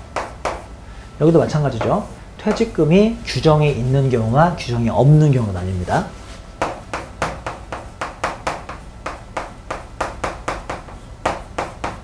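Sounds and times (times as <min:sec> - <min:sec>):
chalk strokes on blackboard: 0:05.5 - 0:08.9.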